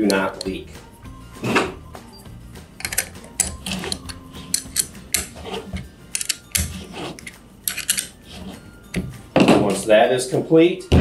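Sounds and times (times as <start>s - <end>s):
ratchet wrench clicking: 6.1s - 8.1s.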